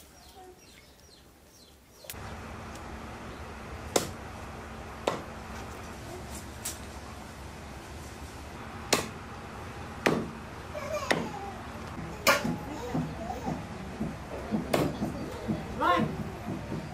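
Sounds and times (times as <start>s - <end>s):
sharp knocks: 5.0s - 5.3s, 10.0s - 10.4s, 12.0s - 16.9s.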